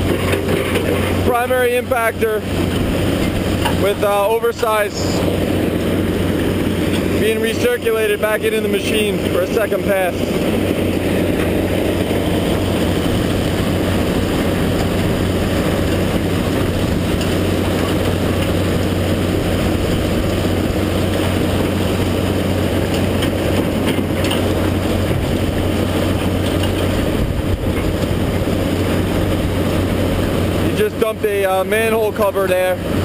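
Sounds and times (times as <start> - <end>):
concrete crushing plant din: 0.0 - 18.5
excavator diesel engine under load: 0.0 - 33.0.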